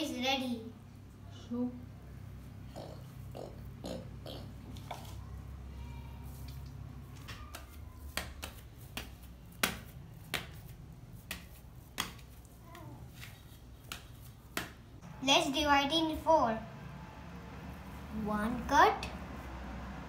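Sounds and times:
dough slapped on steel plate: 7.5s - 12.4s, 13.8s - 14.8s.

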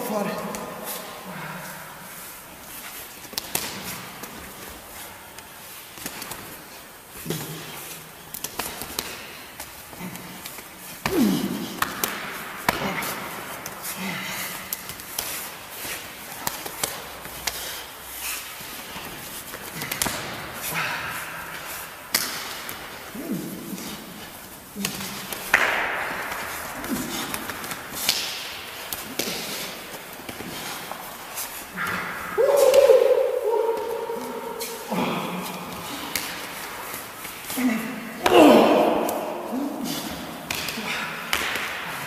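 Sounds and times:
arms clashing and slapping: 2.6s - 42.0s
men grunting and exhaling: 9.9s - 15.0s, 19.6s - 25.4s, 26.4s - 28.2s, 28.9s - 42.0s.

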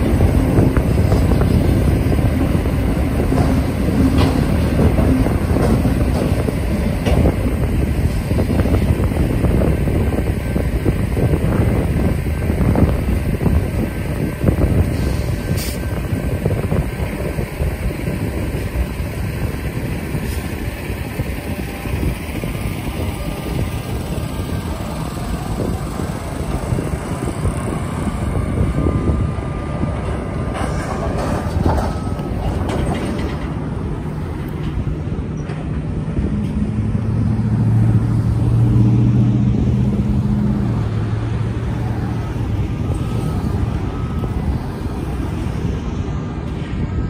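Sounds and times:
freight train rumbling: 0.0s - 47.0s
road traffic driving past: 0.0s - 47.0s
loud vehicle engine passing close: 36.2s - 47.0s.

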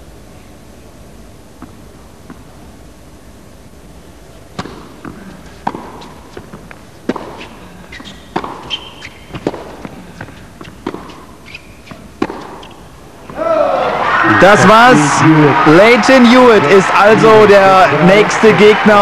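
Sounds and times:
shoes squeaking on court: 4.5s - 13.4s
tennis ball hit by rackets: 4.5s - 13.4s.

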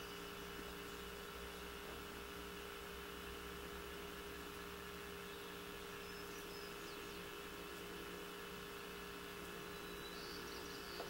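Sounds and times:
electrical hum and hiss: 0.0s - 11.0s
faint high chirps: 9.6s - 11.0s.

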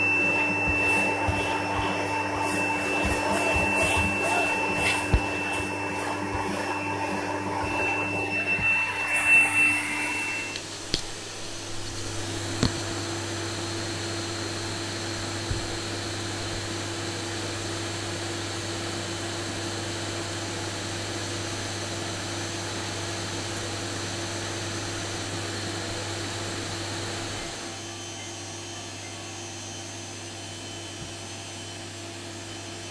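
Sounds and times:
vacuum cleaner running: 0.0s - 32.9s.

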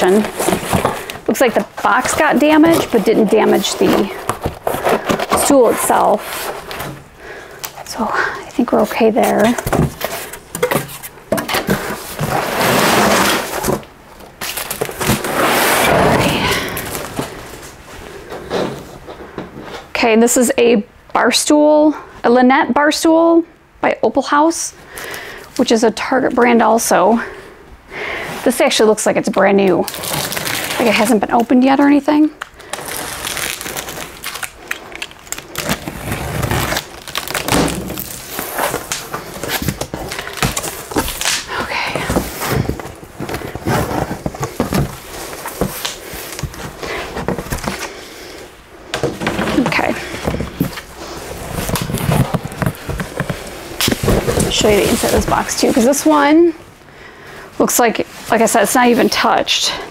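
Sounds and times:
cardboard and foam rustling: 0.0s - 19.8s, 29.6s - 56.6s.

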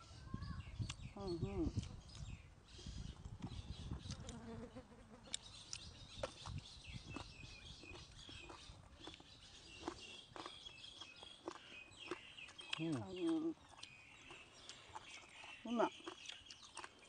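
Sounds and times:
birds chirping: 0.0s - 17.0s
eating crunches: 3.3s - 4.6s, 5.2s - 17.0s.

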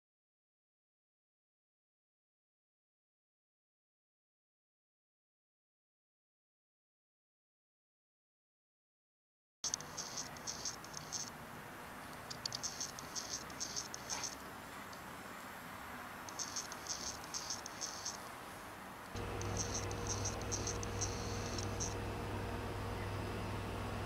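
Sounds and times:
rapid high-pitched rattling ticks: 9.6s - 11.4s, 12.1s - 15.0s, 16.3s - 18.2s, 19.1s - 22.0s
steady low hum: 9.7s - 24.0s.

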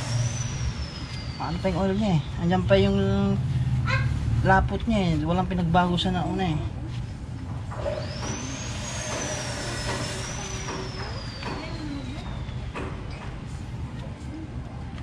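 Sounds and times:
high whistling tone: 0.0s - 2.7s, 8.0s - 13.2s
vehicle passing hiss: 0.0s - 4.6s
steady low hum: 0.0s - 15.0s.

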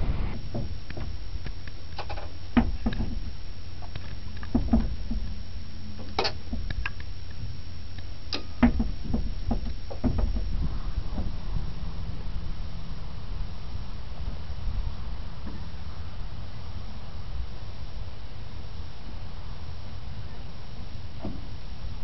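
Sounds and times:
windmill gearing low rumble: 0.0s - 22.0s
wooden creaks and knocks: 0.4s - 1.2s, 2.0s - 5.4s, 6.0s - 7.5s, 8.4s - 11.6s, 21.2s - 21.5s.

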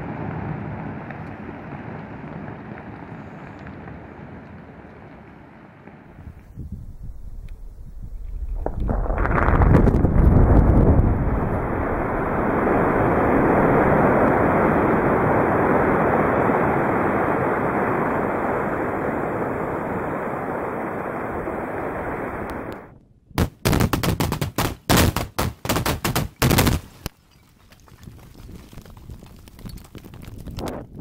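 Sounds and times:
rumbling roar of blast: 8.6s - 17.1s
sharp bangs: 23.4s - 27.1s.

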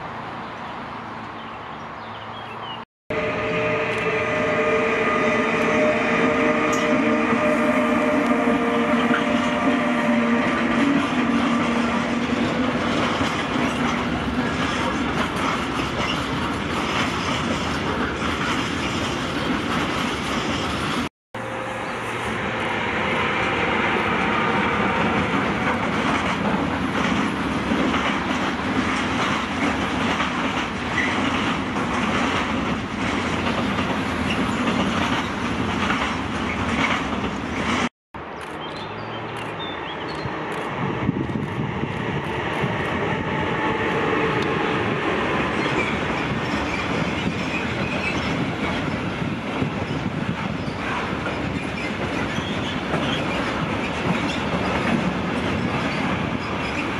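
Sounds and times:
locomotive hum: 3.1s - 38.4s
steel wheels clattering over rail joints: 10.6s - 21.0s, 45.4s - 56.9s.

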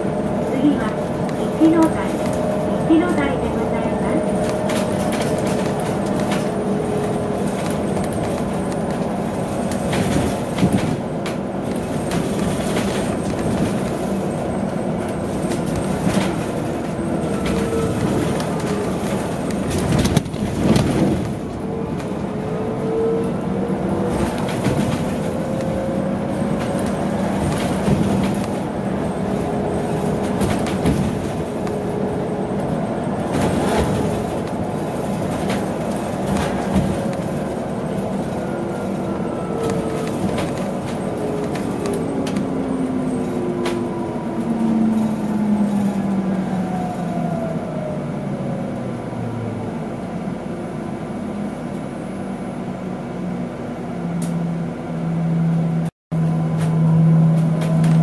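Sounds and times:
bus body rattles and knocks: 0.0s - 22.4s, 23.6s - 45.9s
tyre and road rumble: 0.0s - 46.3s.

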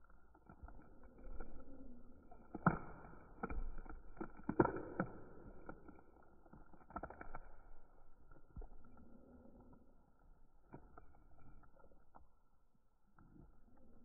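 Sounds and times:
slime squishing and popping: 2.3s - 8.0s.

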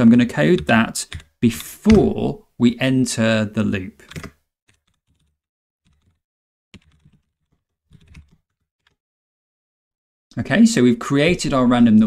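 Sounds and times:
faint keyboard typing: 4.0s - 6.2s, 6.8s - 9.0s.

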